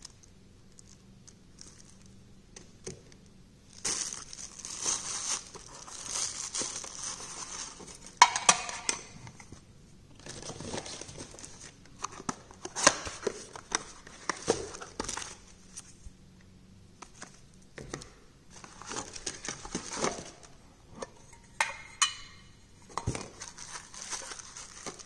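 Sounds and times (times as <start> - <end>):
plastic bag crinkling: 0.0 - 2.2, 3.6 - 8.4, 18.5 - 20.6, 23.0 - 25.0.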